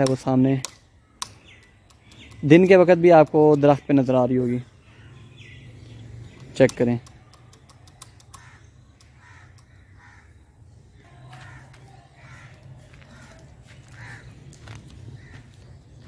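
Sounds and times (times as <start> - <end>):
faint crows cawing: 4.6 - 6.4, 8.0 - 16.0
faint clicks: 6.4 - 9.7.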